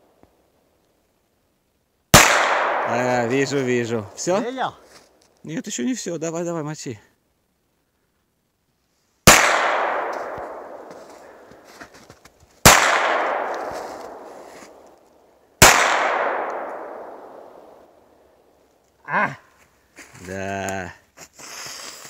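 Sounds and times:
gunshots echoing: 2.1s - 4.4s, 9.3s - 11.5s, 12.6s - 14.8s, 15.6s - 17.9s.

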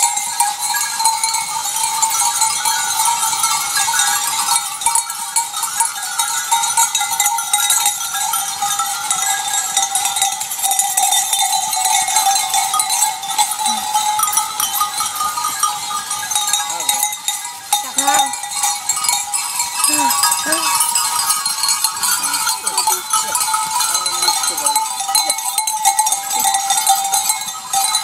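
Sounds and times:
goat bells jangling: 0.0s - 28.0s.

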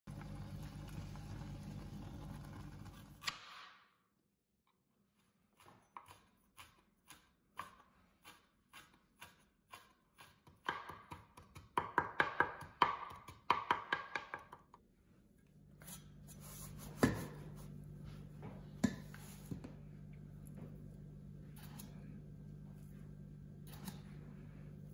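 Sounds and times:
cleaver chopping on plastic board: 10.4s - 14.4s
low steady hum: 14.8s - 24.9s.

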